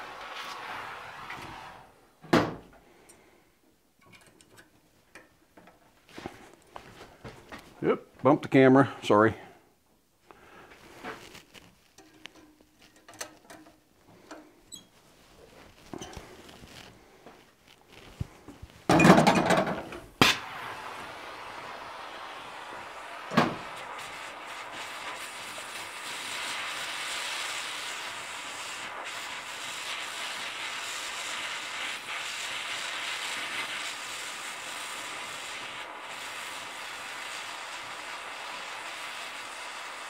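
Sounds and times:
gas torch hissing: 0:00.0 - 0:02.0, 0:19.8 - 0:40.0
gas torch lighting with pop: 0:11.0 - 0:14.5, 0:17.7 - 0:40.0.

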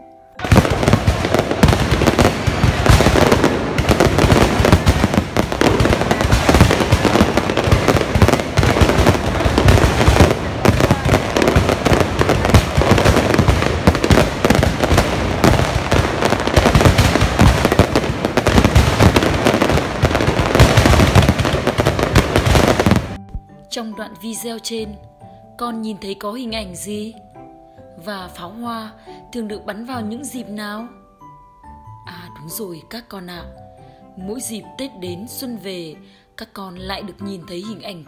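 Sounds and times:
fireworks bangs and crackles: 0:00.4 - 0:23.2.

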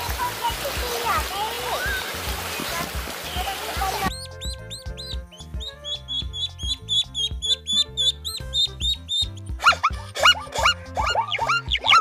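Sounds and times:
background music with beat: 0:02.9 - 0:12.0
ducklings peeping: 0:04.1 - 0:12.0
low-pitched animal calls: 0:06.0 - 0:12.0.

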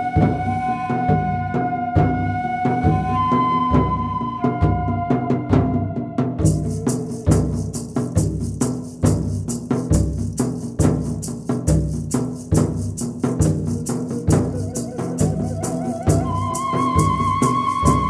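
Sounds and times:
low drum beat: 0:05.5 - 0:18.0
shaker-like percussion rattling: 0:06.4 - 0:18.0.

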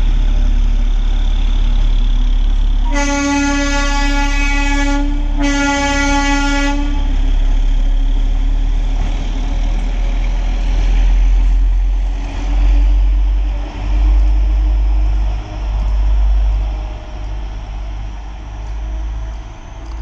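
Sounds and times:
rail car engine and wheels rumbling: 0:00.0 - 0:20.0
rail car horn blast: 0:02.8 - 0:07.3.

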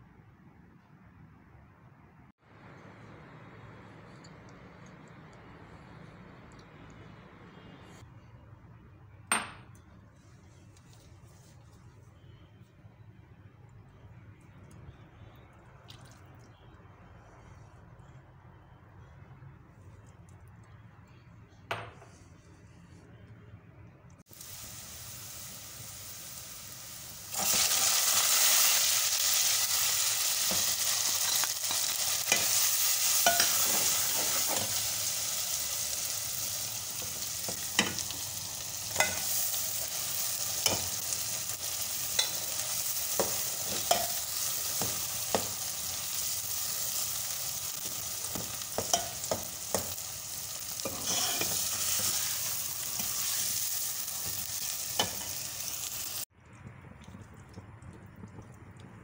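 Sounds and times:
oil sizzling in a pot: 0:24.2 - 0:56.4
metal spoon scraping a pot: 0:50.8 - 0:52.4.

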